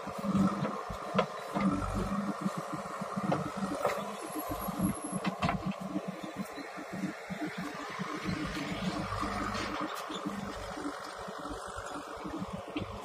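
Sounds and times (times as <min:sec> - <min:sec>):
diesel engine low rumble: 0:00.0 - 0:13.0
sharp knocks and clicks: 0:05.2 - 0:05.8.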